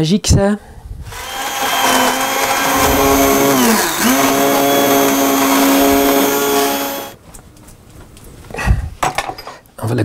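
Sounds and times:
immersion blender motor whine: 1.1 - 7.2.

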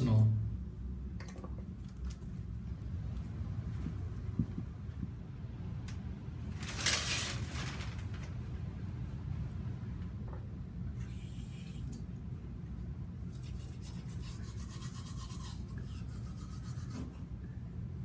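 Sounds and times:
steady low hum: 0.0 - 18.0
toothbrush scrubbing teeth: 13.3 - 17.1.

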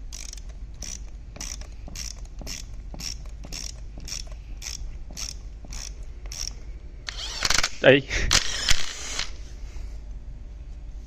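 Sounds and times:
socket ratchet clicking: 0.0 - 7.8.

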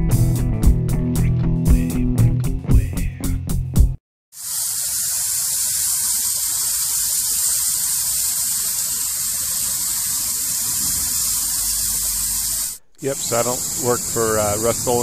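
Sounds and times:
water spraying from burst pipe: 4.3 - 15.0.

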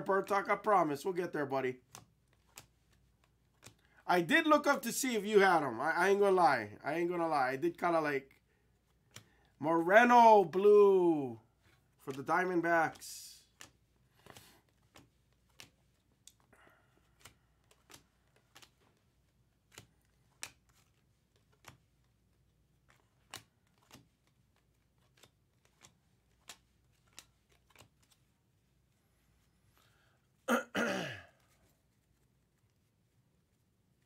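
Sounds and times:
trading cards flipping: 1.8 - 5.5, 7.7 - 29.9
person sighing: 30.5 - 31.5.

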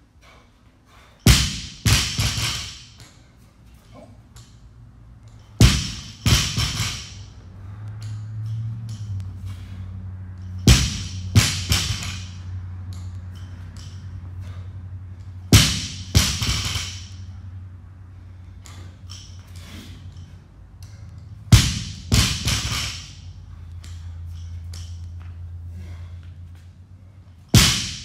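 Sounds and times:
steady low hum: 0.0 - 28.0
barbell thudding on rubber floor: 1.3 - 3.0, 5.6 - 7.3, 10.6 - 12.4, 15.5 - 17.2, 21.5 - 23.2, 27.6 - 28.0.

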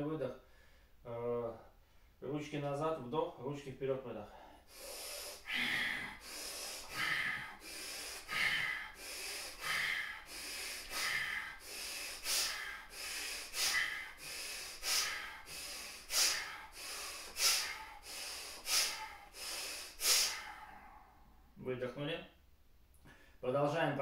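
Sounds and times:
rapid forceful nose breathing: 4.5 - 21.1.

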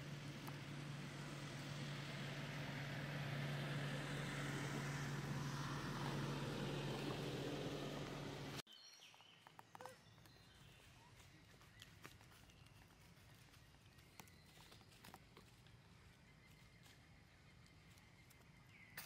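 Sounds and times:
steady engine hum: 0.0 - 8.7.

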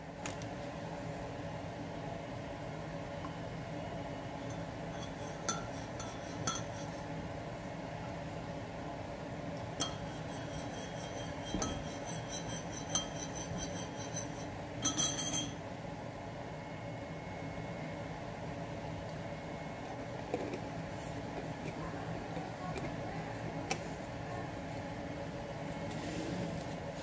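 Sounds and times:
steady low hum: 0.0 - 27.0
spoon clinking against ceramic mug: 4.5 - 7.0, 9.8 - 15.6.

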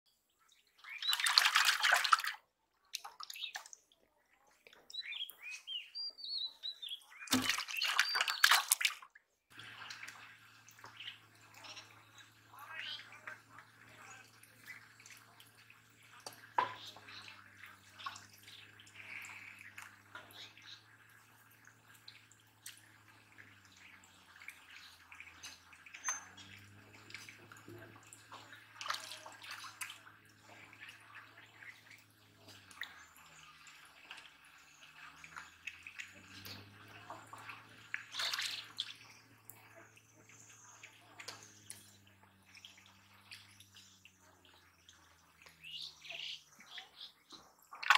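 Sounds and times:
water dripping: 0.2 - 47.9
hands splashing in muddy water: 1.0 - 3.8, 7.2 - 9.0.

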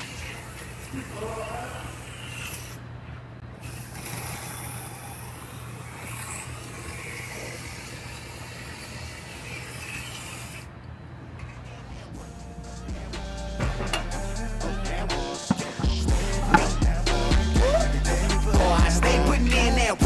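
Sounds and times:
spray hissing: 3.6 - 5.2.

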